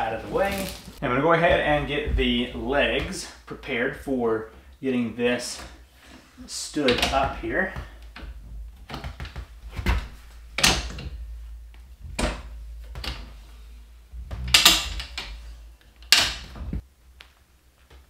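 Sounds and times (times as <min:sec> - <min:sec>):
metal stand clunking: 0:06.8 - 0:16.8.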